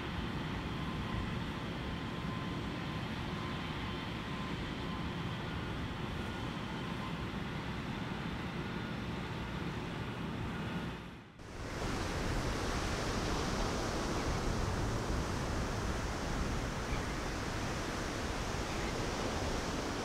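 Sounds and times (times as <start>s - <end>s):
rushing wind: 11.4s - 20.0s.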